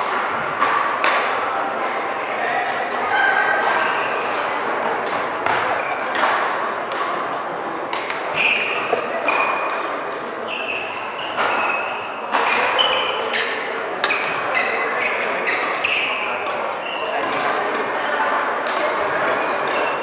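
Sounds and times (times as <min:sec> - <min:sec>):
racket striking shuttlecock: 0:00.0 - 0:01.4, 0:05.0 - 0:07.3, 0:07.9 - 0:10.3, 0:13.3 - 0:14.4
shoes squeaking on court: 0:05.6 - 0:06.1, 0:08.2 - 0:13.6, 0:14.5 - 0:16.2.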